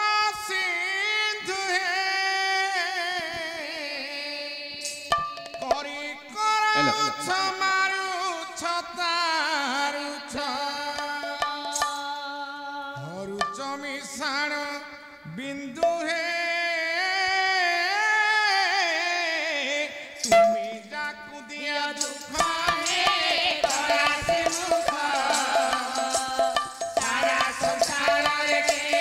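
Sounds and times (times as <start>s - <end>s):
drums and percussion: 4.8s - 7.6s, 9.7s - 12.4s, 13.0s - 14.6s, 20.2s - 29.0s
man singing held notes: 5.7s - 7.4s.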